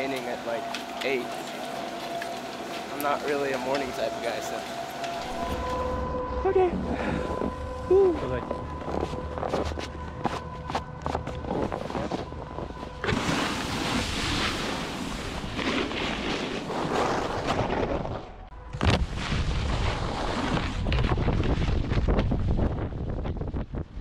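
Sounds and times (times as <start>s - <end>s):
snowboard scraping snow: 11.1s - 18.2s, 19.0s - 22.6s
wind on camera microphone: 17.4s - 24.0s.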